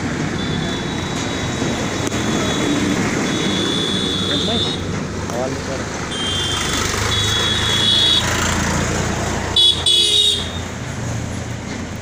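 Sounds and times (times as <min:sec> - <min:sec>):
street traffic: 0:00.0 - 0:12.0
vehicle horns honking: 0:00.4 - 0:04.9, 0:06.1 - 0:08.4, 0:09.6 - 0:10.6.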